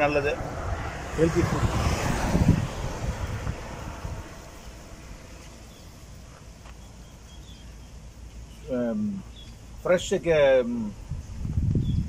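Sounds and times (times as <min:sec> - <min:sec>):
wind rumbling on microphone: 0:00.0 - 0:06.6, 0:10.6 - 0:12.0
faint bird chirps: 0:05.3 - 0:09.8, 0:11.8 - 0:12.0.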